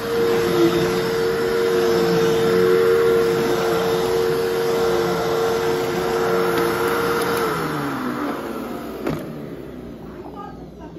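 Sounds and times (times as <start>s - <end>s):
vacuum cleaner whine: 0.0s - 10.9s.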